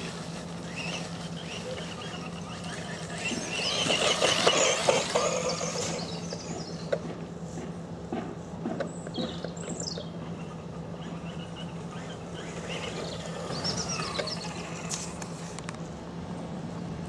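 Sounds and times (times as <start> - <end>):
small birds chirping: 0.0 - 7.1, 8.8 - 15.2
steady low hum: 0.0 - 17.0.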